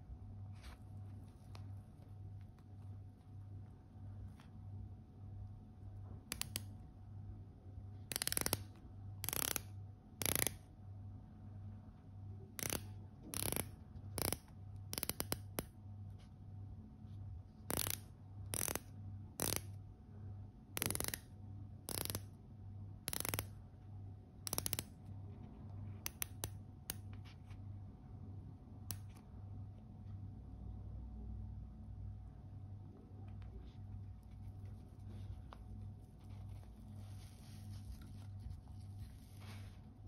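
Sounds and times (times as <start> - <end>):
watch bezel ratcheting clicks: 8.1 - 10.6, 12.6 - 15.7, 17.7 - 19.7, 20.8 - 21.3, 21.9 - 22.3, 23.1 - 23.5, 24.5 - 24.9.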